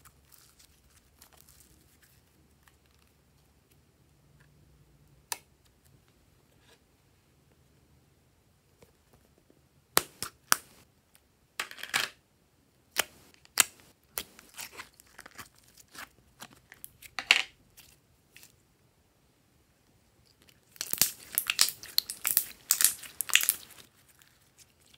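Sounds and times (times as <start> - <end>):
slime crackling and pulling: 20.6 - 24.9
plastic tub crinkling: 20.8 - 24.9.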